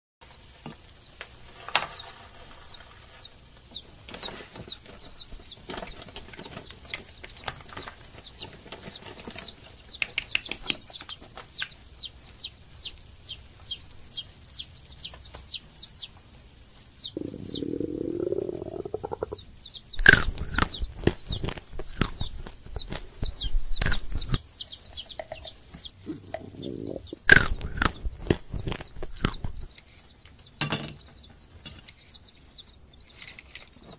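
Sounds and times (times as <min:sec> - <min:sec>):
baby chicks peeping: 0:00.2 - 0:33.9
chocolate cracking: 0:20.0 - 0:24.4, 0:27.0 - 0:29.7
chocolate foil crackling: 0:20.0 - 0:24.4, 0:27.1 - 0:29.7.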